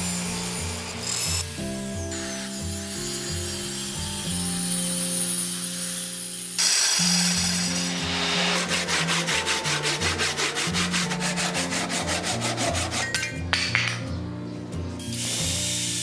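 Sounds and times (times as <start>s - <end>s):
hand saw cutting wood: 6.6s - 13.3s.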